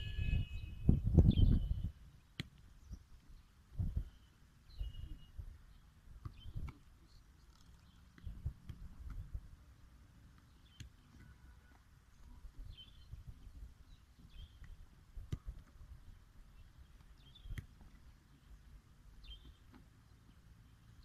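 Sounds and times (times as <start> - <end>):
birds chirping: 0.0 - 21.0.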